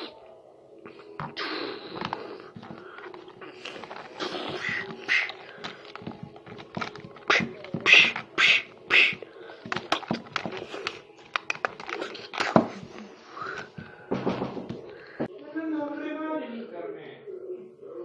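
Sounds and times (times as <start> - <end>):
plastic toys knocking on floor: 3.9 - 8.4, 9.0 - 12.8, 14.1 - 14.9.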